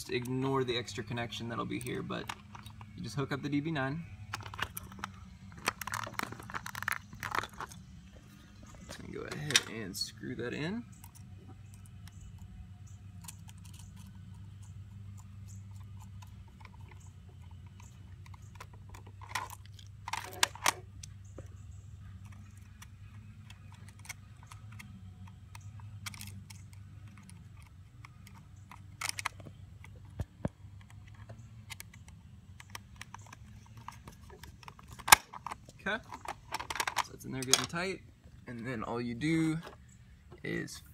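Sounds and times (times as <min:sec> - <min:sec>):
steady low hum: 0:00.0 - 0:40.9
screwdriver clicking and scraping: 0:10.9 - 0:37.0.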